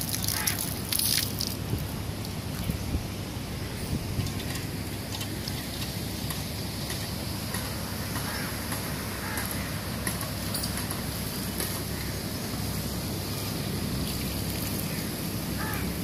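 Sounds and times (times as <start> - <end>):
wind rumbling on microphone: 0.0 - 6.2.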